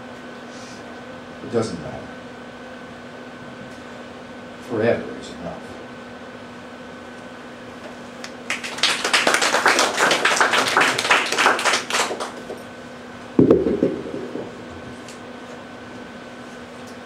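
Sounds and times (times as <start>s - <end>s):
small audience applauding: 8.2s - 12.6s
microphone handling thump: 13.4s - 15.0s.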